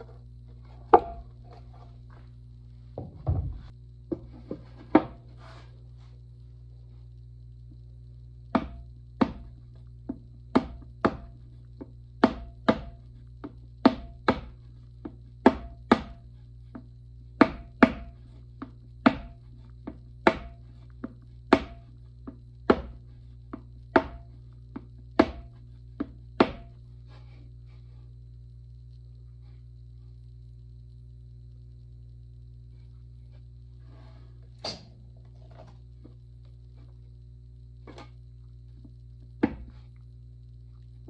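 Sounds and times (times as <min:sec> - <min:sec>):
clay cup knocking on wood: 0:00.9 - 0:01.3.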